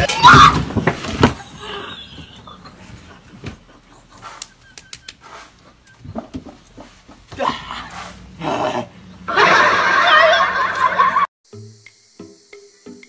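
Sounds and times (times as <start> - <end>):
person landing on plastic crate: 0.1 - 1.5.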